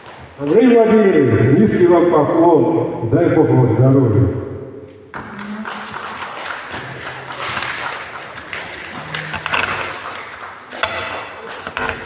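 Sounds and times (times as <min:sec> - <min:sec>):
murmur of voices: 0:08.8 - 0:09.8.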